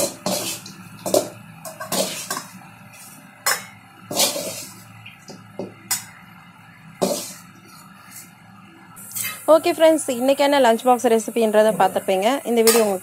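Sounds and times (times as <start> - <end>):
metal spoon scraping steel pan: 0.0 - 4.9, 7.0 - 8.3.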